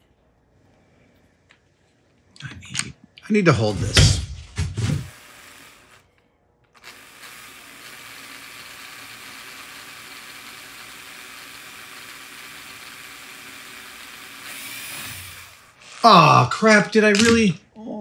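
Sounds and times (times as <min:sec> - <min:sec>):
cordless drill motor whirring: 0:05.0 - 0:16.0.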